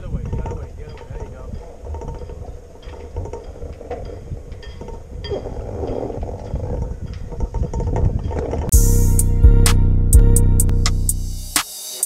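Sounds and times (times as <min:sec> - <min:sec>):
wind rumble on microphone: 0:00.0 - 0:08.7.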